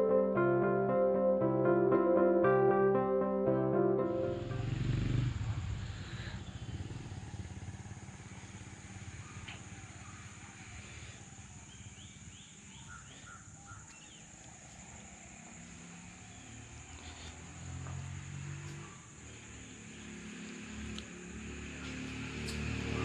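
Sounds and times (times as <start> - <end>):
faint bird chirps: 8.4 - 17.4.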